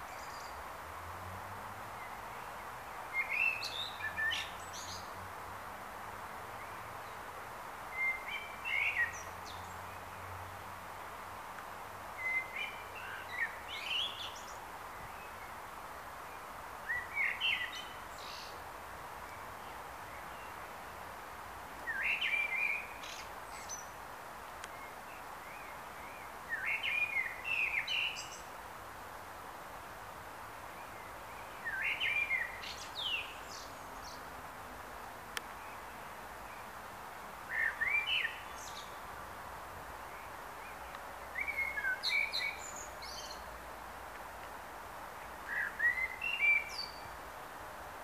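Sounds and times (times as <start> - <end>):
background hiss: 0.0 - 48.0
blackbird singing: 12.2 - 14.6, 16.9 - 18.5, 21.9 - 23.9, 25.5 - 28.4, 31.4 - 34.2, 37.5 - 39.0, 41.3 - 43.4, 45.5 - 47.1.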